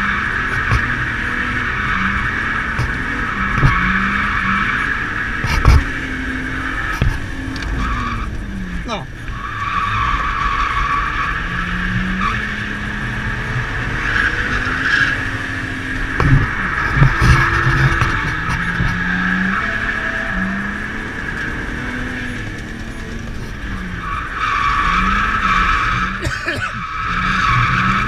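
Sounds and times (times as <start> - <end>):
car engine revving: 0.0 - 28.0
sharp knocks: 5.4 - 5.9.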